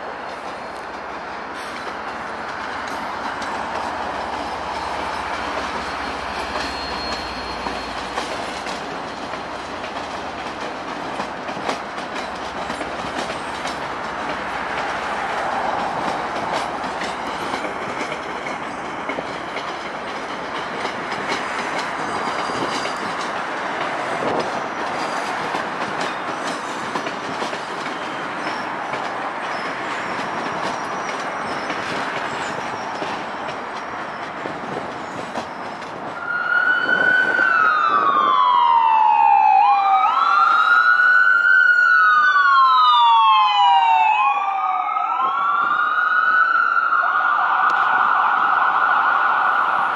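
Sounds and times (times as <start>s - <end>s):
clickety-clack over rail joints: 0.0s - 38.6s
train wheels rumbling on rails: 0.0s - 39.4s
faint high wheel squeal: 4.4s - 8.6s, 29.5s - 33.2s, 35.0s - 35.9s.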